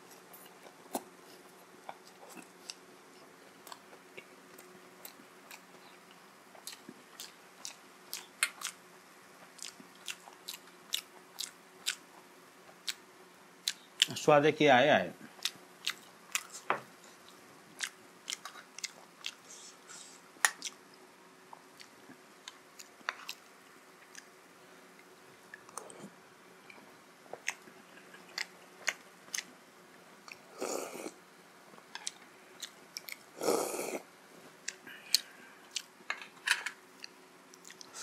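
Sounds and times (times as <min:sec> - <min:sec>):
person chewing: 0:00.0 - 0:08.8, 0:09.4 - 0:13.0, 0:15.3 - 0:20.8, 0:21.5 - 0:24.3, 0:25.0 - 0:29.6, 0:30.2 - 0:31.2, 0:31.9 - 0:36.0, 0:37.0 - 0:38.0
person sipping soup: 0:30.3 - 0:31.2, 0:33.4 - 0:34.1.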